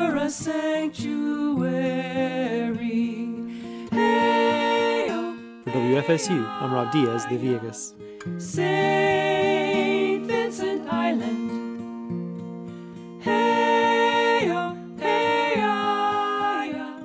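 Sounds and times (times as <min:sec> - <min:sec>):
acoustic guitar: 0:00.0 - 0:17.0
voices singing long notes: 0:03.9 - 0:11.4, 0:13.2 - 0:17.0.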